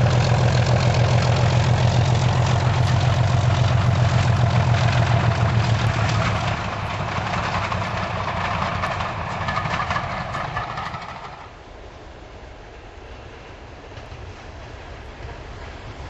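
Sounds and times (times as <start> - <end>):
coaches rumbling on track: 0.0 - 16.0
diesel locomotive engine pulsing: 0.0 - 16.0.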